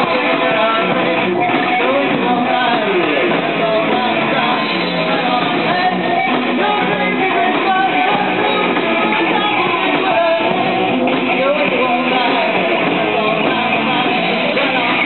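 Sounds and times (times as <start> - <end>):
bass guitar: 0.0 - 15.0
drums: 0.0 - 15.0
electric guitar: 0.0 - 15.0
woman singing: 0.0 - 15.0.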